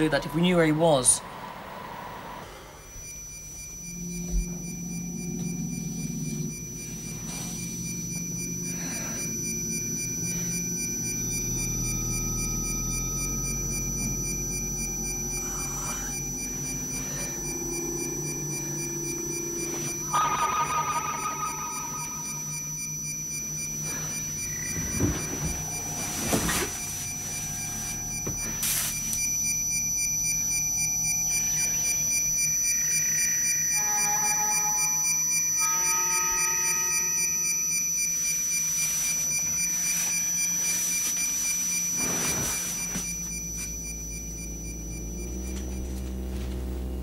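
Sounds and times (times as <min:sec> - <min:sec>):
high whistling tones: 0:00.0 - 0:43.7
synthesized low hum: 0:00.0 - 0:47.0
faint rapid pulsing: 0:02.1 - 0:35.6.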